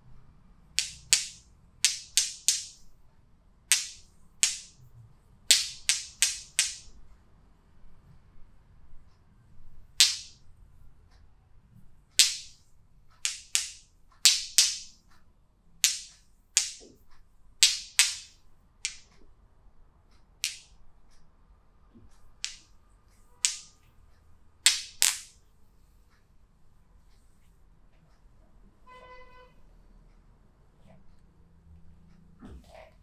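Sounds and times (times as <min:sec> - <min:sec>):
hands slapping on body: 0:00.8 - 0:02.8, 0:12.2 - 0:12.6, 0:13.2 - 0:15.0, 0:23.4 - 0:23.7.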